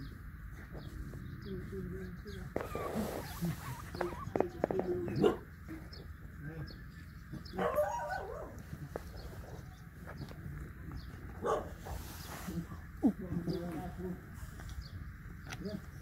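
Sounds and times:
puppies yipping: 2.5 - 5.5, 7.3 - 9.8.

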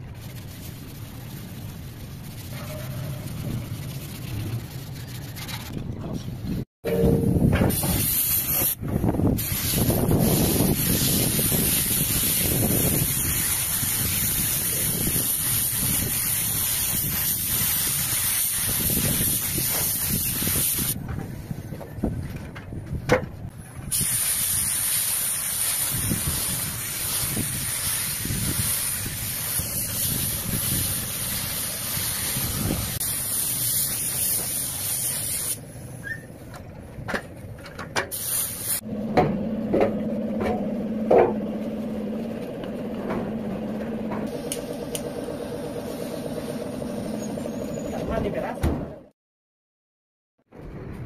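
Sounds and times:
spray gun hissing: 7.7 - 21.0, 23.9 - 35.7, 38.1 - 38.8, 44.3 - 47.2.

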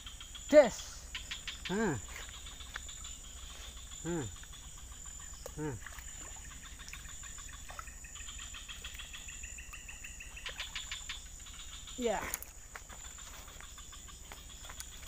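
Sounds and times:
high-pitched insect chirring: 0.0 - 5.7.

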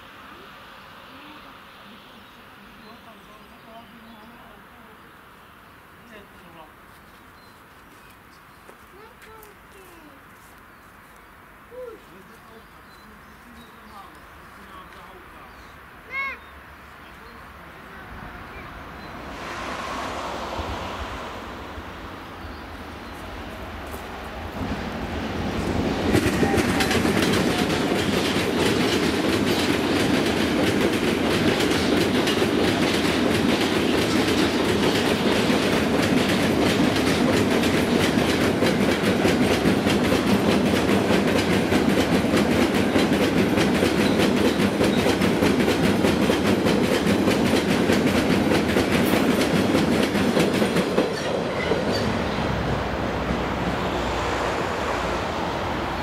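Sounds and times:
freight train rumbling on rails: 17.3 - 56.0
wheels clacking over rail joints: 21.7 - 54.0.

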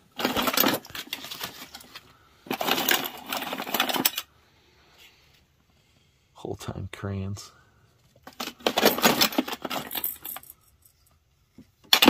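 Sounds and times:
small objects clattering in a box: 0.0 - 4.3, 8.2 - 10.6.

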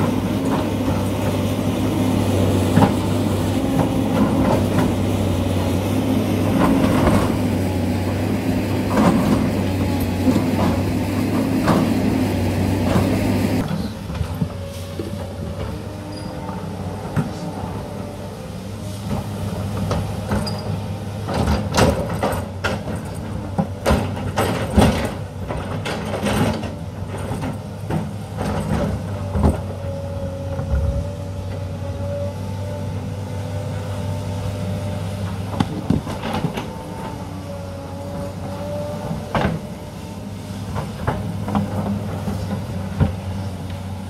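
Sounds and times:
excavator diesel engine: 0.0 - 44.0.

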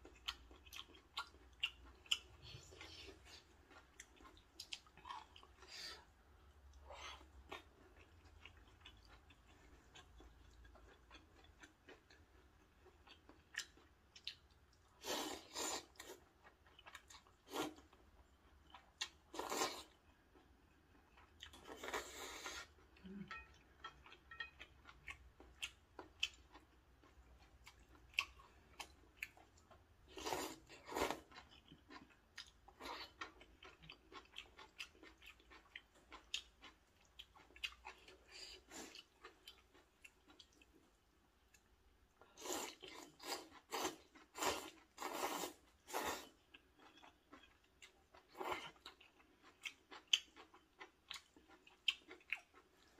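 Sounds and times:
quiet chewing: 0.0 - 52.9.

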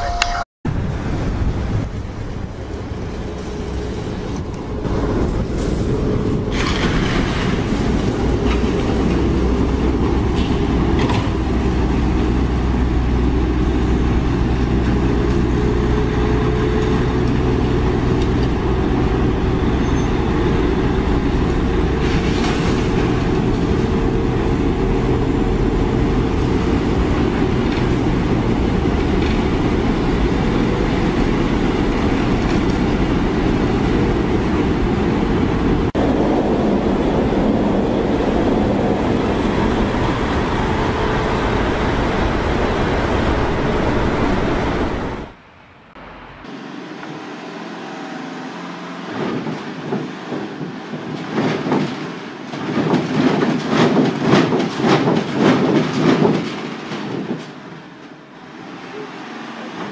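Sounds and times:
heavy vehicles rumbling: 0.7 - 59.9.

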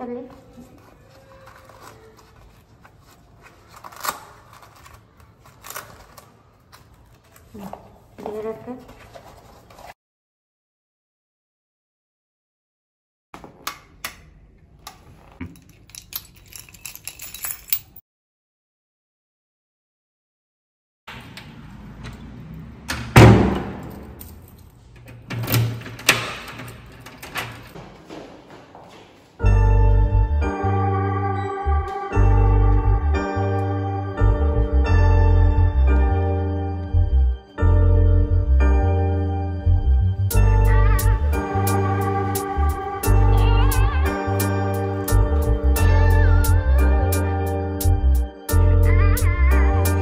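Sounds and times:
key turning in lock: 15.4 - 18.0, 25.4 - 27.8
door closing with a thud: 22.9 - 24.2.

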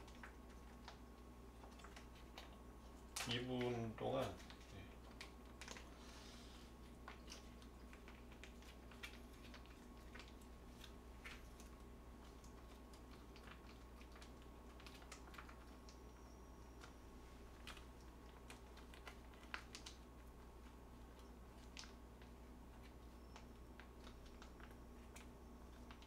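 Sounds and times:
low steady hum: 0.0 - 26.0
plastic pouch crinkling and clicking: 3.1 - 6.0, 6.9 - 16.0, 16.8 - 26.0.

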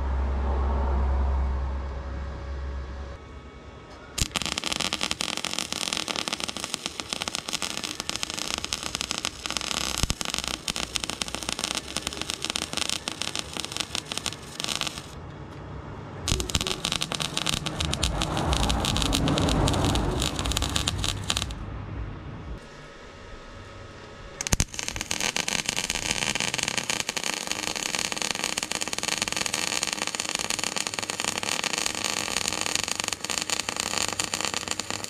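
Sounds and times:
welder arc crackling: 4.2 - 15.2, 16.3 - 21.6, 24.4 - 35.0.

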